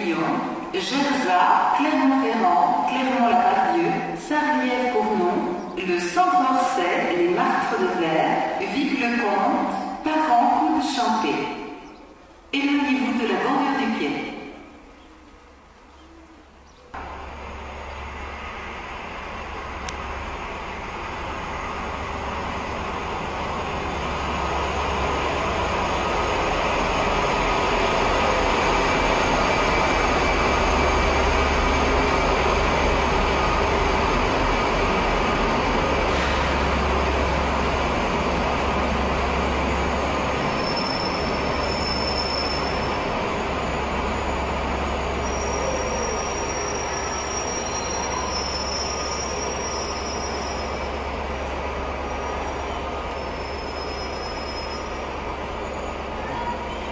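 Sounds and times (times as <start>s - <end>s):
train rumbling: 11.7s - 56.9s
high brake squeal: 40.5s - 43.1s, 45.0s - 51.1s, 52.0s - 56.9s.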